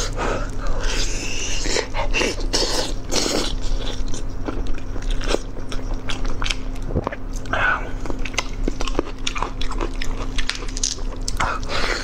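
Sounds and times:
closed-mouth chewing: 0.4s - 12.0s
biting and tearing chicken: 8.1s - 12.0s.

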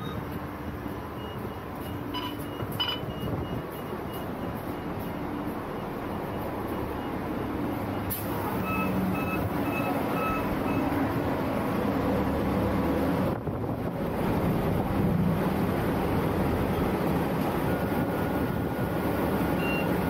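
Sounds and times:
short electronic beeps: 0.0s - 0.2s, 1.1s - 10.9s, 19.6s - 19.9s
bus engine and road rumble: 0.0s - 20.0s.

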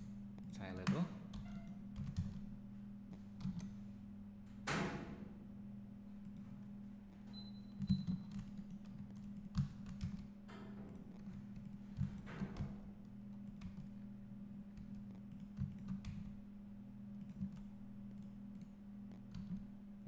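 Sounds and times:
steady low hum: 0.0s - 20.0s
keyboard and mouse clicks: 3.1s - 3.7s, 7.3s - 14.0s, 14.7s - 16.4s, 17.2s - 19.7s.

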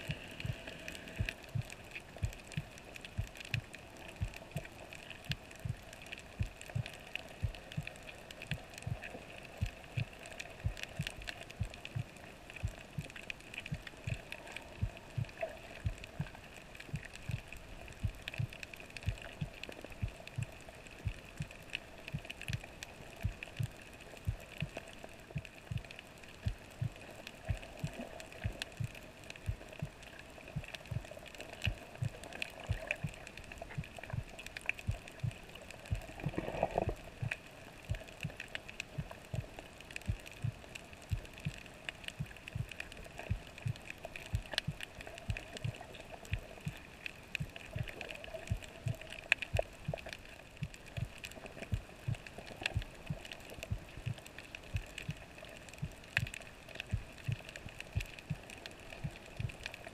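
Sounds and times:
faint clicks: 0.0s - 59.9s
steady underwater hum: 0.0s - 59.9s.

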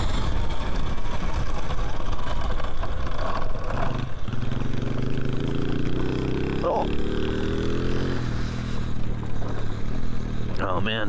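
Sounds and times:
wind rushing over microphone: 0.0s - 4.4s
tyres rolling on dirt: 0.0s - 5.4s.

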